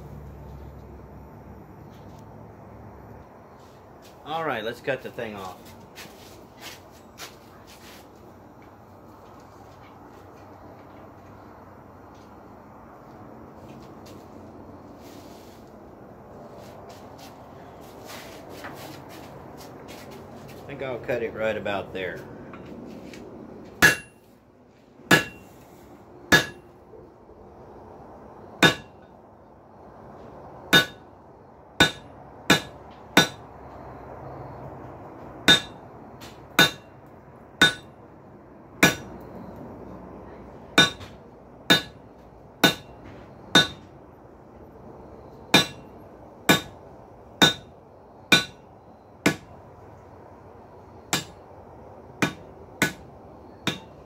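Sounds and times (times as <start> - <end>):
hammer ringing on hot steel: 23.8 - 24.3, 25.1 - 25.5, 26.3 - 26.7, 28.6 - 29.0, 30.7 - 31.0, 31.8 - 33.4, 35.5 - 35.8, 36.6 - 36.9, 37.6 - 38.0, 38.8 - 39.2, 40.8 - 41.1, 41.7 - 42.0, 42.6 - 43.9, 45.5 - 45.9, 46.5 - 46.8, 47.4 - 47.7, 48.3 - 49.5, 51.1 - 51.4, 52.2 - 54.0.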